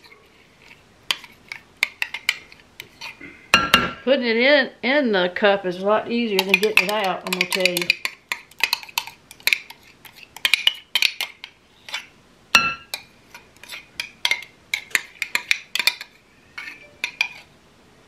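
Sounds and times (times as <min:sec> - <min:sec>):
spoon scraping and clinking glass: 0:11.9 - 0:17.5.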